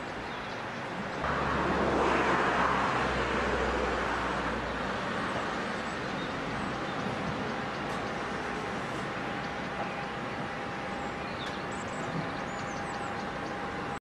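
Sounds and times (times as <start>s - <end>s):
motor vehicle passing: 1.2s - 9.7s.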